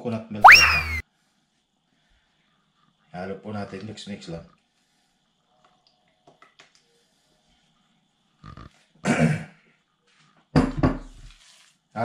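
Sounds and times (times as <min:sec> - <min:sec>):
man clearing throat: 0:09.0 - 0:09.5.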